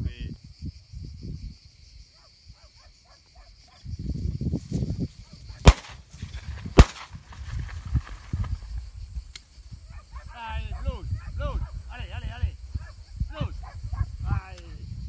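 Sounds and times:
shotgun shots: 0:05.6 - 0:07.5.

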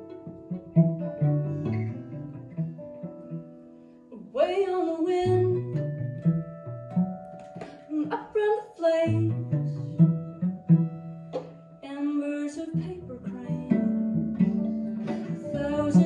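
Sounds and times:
strummed acoustic guitar: 0:00.0 - 0:04.0, 0:12.7 - 0:16.0
plucked upright bass: 0:00.0 - 0:16.0
person singing: 0:04.2 - 0:05.8, 0:07.8 - 0:09.9, 0:11.8 - 0:16.0.

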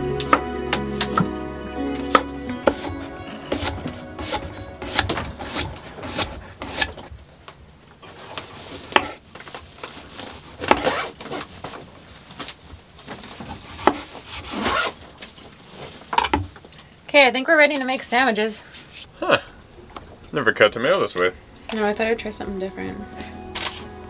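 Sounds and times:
knife cutting on cutting board: 0:02.7 - 0:06.9.

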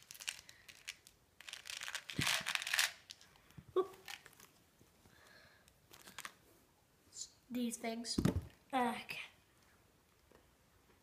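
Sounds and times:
plastic wrapper crinkling and tearing: 0:00.0 - 0:04.6, 0:05.9 - 0:06.4.

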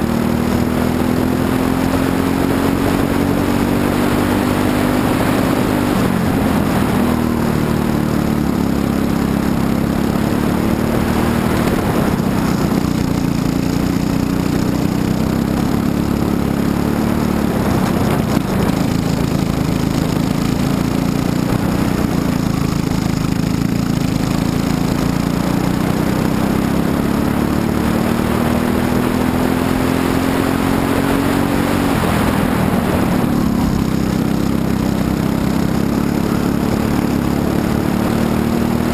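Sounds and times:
kart engine at racing speed: 0:00.0 - 0:38.9.

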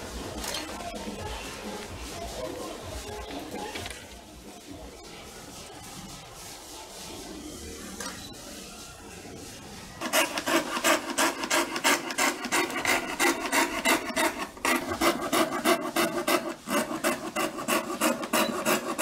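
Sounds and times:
coping saw cutting thin wood: 0:10.0 - 0:19.0.

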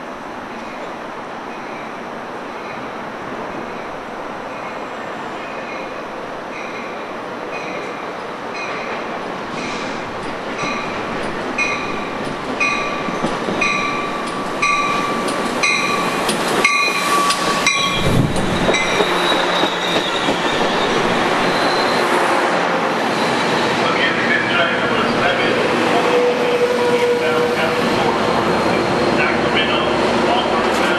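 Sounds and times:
rail whine: 0:00.0 - 0:30.9
rush of passing train cars: 0:00.0 - 0:30.9
train rumble: 0:00.0 - 0:30.9
train bell dinging: 0:11.6 - 0:20.3.

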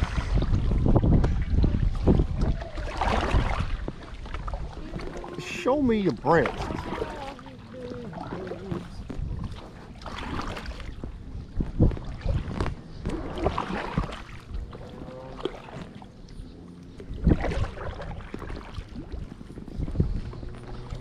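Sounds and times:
paddle splashing in water: 0:00.0 - 0:21.0
thumps against inflatable boat: 0:10.4 - 0:14.2.

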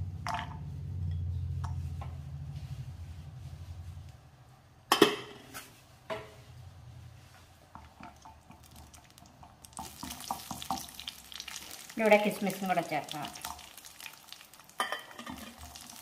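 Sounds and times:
low hum: 0:00.0 - 0:04.7
nuts sizzling in oil: 0:08.0 - 0:16.0.

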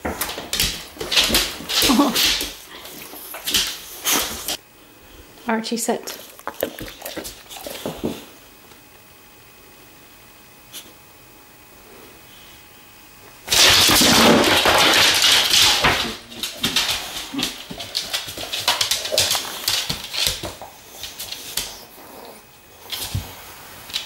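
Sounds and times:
dog claws clicking on tiles: 0:00.0 - 0:04.6, 0:13.5 - 0:21.8.

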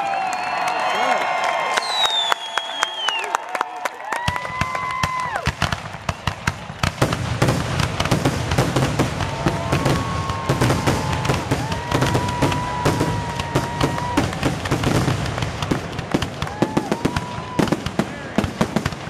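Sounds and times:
whistling fireworks: 0:00.0 - 0:03.4, 0:04.2 - 0:19.0
fireworks bangs and crackling: 0:04.2 - 0:19.0.

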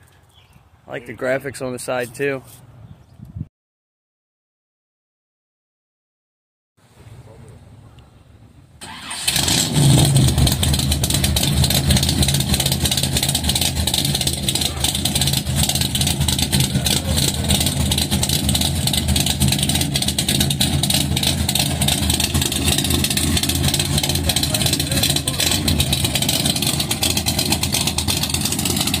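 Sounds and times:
choppy engine exhaust lope: 0:08.8 - 0:29.0
van pulling away: 0:08.8 - 0:29.0.

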